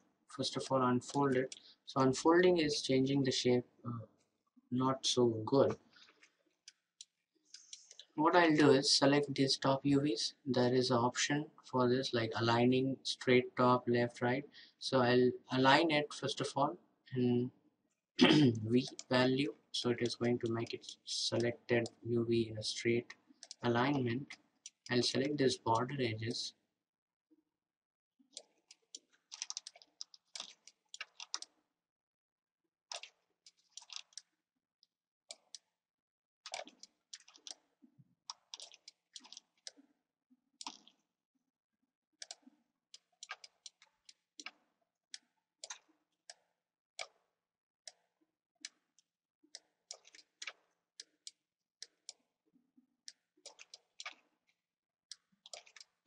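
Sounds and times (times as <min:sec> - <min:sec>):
computer mouse clicking: 0:18.9 - 0:19.1, 0:23.0 - 0:23.6, 0:28.3 - 0:31.6, 0:32.9 - 0:34.3, 0:35.3 - 0:35.7, 0:36.5 - 0:37.7, 0:38.3 - 0:39.9, 0:40.6 - 0:41.0, 0:42.2 - 0:44.6, 0:45.2 - 0:47.2, 0:47.9 - 0:52.2, 0:53.1 - 0:54.3, 0:55.1 - 0:56.0.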